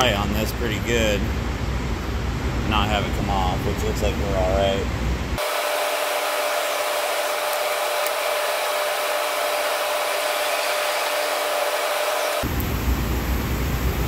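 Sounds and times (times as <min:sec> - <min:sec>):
welding rig hiss and hum: 0:05.3 - 0:14.0.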